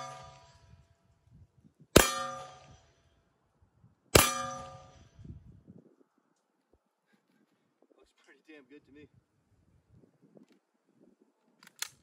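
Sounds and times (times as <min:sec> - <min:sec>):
steel target plate ringing: 0:00.0 - 0:00.8, 0:02.0 - 0:03.0, 0:04.2 - 0:05.2.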